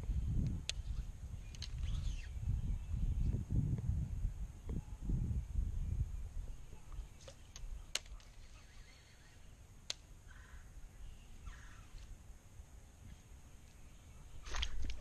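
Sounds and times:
crow cawing: 10.3 - 10.7.

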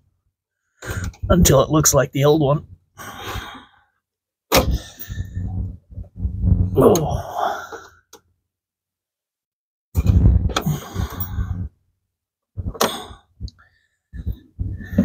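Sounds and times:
man breathing hard with effort: 2.9 - 4.0, 4.6 - 5.7, 7.2 - 8.1, 10.6 - 11.8, 12.7 - 15.0.

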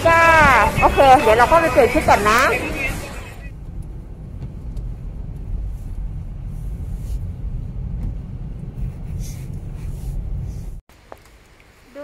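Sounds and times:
wind buffeting microphone: 0.0 - 10.8.

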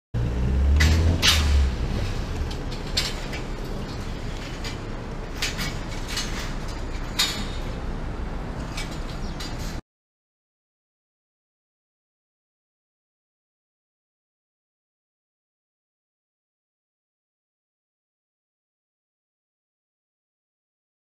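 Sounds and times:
heavy low rumble: 0.2 - 9.8
open-air noise: 0.2 - 9.8
sharp clicks and knocks: 0.7 - 7.8.

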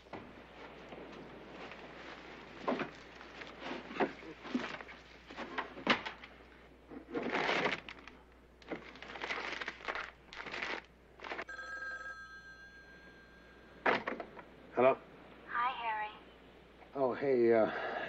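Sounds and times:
papers rustling and shuffling: 0.0 - 11.5
telephone bell ringing: 11.5 - 14.0.

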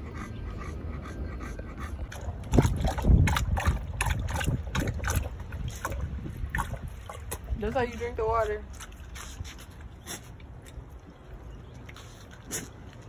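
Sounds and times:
dog panting: 0.0 - 3.0
dog lapping water: 0.0 - 13.0.

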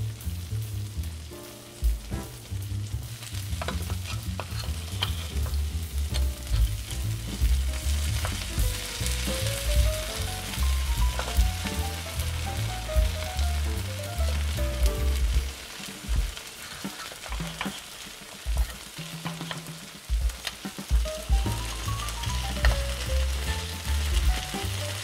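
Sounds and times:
cheese sizzling in a pan: 0.0 - 25.0
wooden spatula scraping a pan: 3.5 - 12.4, 15.1 - 21.0.

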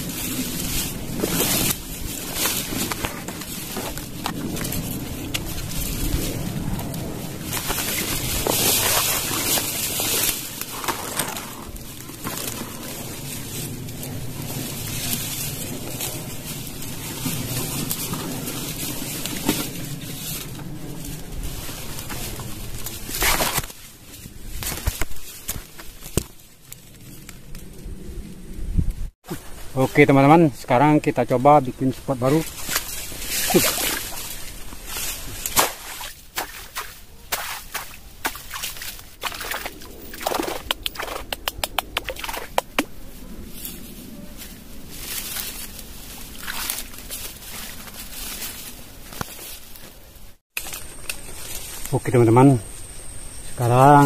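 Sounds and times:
vegetation scraping microphone: 0.0 - 25.7
dry grass rustling: 0.0 - 54.0
stems snapping: 0.6 - 6.0, 6.8 - 14.1, 21.9 - 27.8, 35.4 - 43.0, 46.4 - 49.9, 50.6 - 51.9
snapping clicks: 40.3 - 42.9.

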